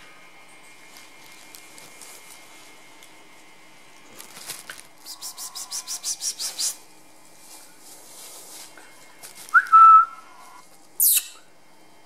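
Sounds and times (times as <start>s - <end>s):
kissing clicks: 5.0s - 6.8s, 11.0s - 11.4s
high whistle-like tone: 9.5s - 11.4s.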